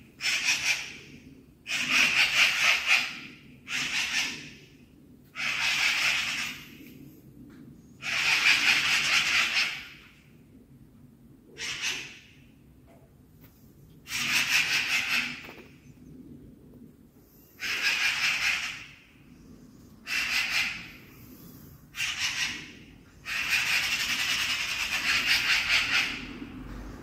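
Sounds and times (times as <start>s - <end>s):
magpie rattling chatter: 0.2s - 1.1s, 1.7s - 4.5s, 5.4s - 6.6s, 8.0s - 10.0s, 11.6s - 12.2s, 14.1s - 15.7s, 17.6s - 19.0s, 20.0s - 21.0s, 21.9s - 26.4s.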